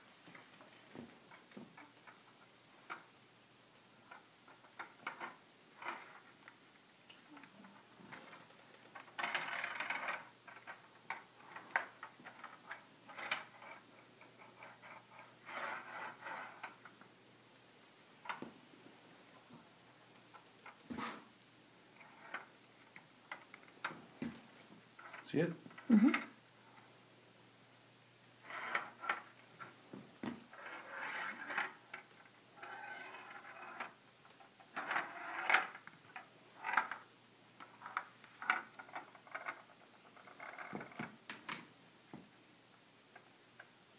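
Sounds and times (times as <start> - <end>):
ball rolling in plastic maze: 4.0 - 17.1, 21.8 - 27.0, 28.4 - 41.6.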